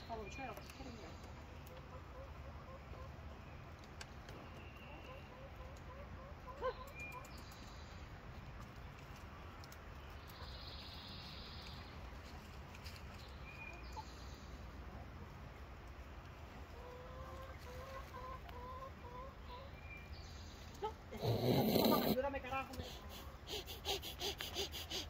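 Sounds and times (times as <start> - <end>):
hens clucking: 1.4 - 3.4, 4.9 - 7.3, 16.4 - 19.8, 20.8 - 25.0.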